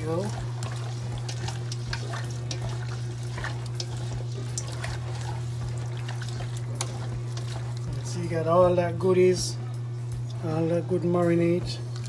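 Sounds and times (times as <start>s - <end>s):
chicken squelching in marinade: 0.0s - 8.4s
steady low hum: 0.0s - 12.0s.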